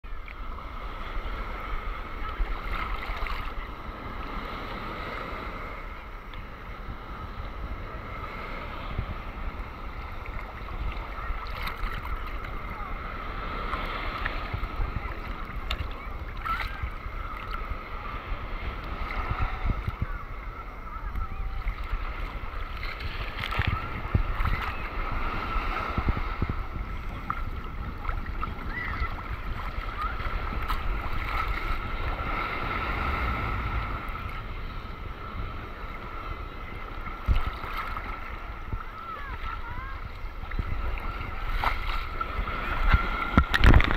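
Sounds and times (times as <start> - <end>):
small waves lapping: 0.0 - 43.9
water splashes: 0.0 - 43.9
wind buffeting microphone: 0.0 - 43.9.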